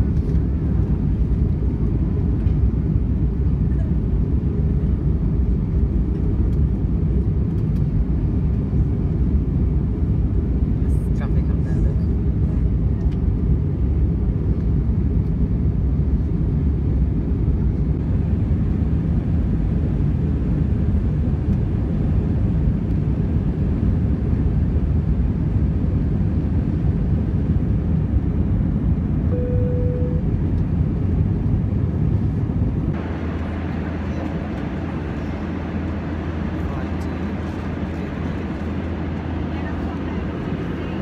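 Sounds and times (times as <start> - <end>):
airplane cabin rumble: 0.0 - 41.0
steady tone: 29.3 - 30.4.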